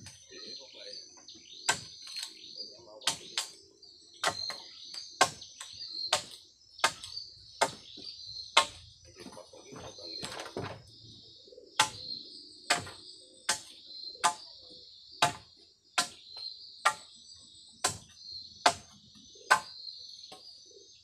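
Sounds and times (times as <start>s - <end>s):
insect trill: 0.0s - 21.0s
machete chopping: 3.1s - 3.6s, 4.2s - 4.6s, 5.2s - 8.0s, 8.6s - 8.8s, 11.8s - 12.1s, 12.7s - 14.4s, 15.2s - 16.2s, 16.9s - 17.1s, 17.8s - 19.7s.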